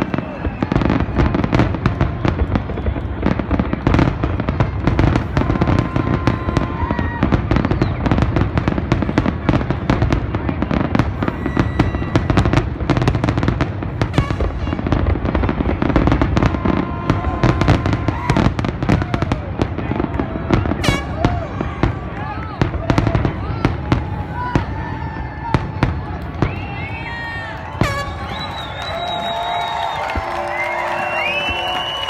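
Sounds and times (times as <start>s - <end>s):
fireworks crackling: 0.0s - 32.0s.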